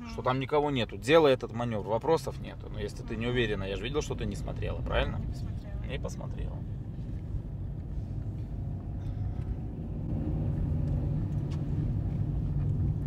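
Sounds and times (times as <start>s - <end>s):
car engine rumble: 0.0s - 13.0s
road noise inside car: 0.0s - 13.0s.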